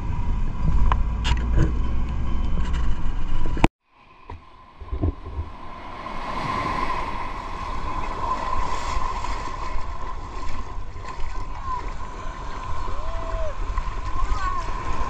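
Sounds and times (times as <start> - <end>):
small waves washing in surf: 3.9 - 15.0.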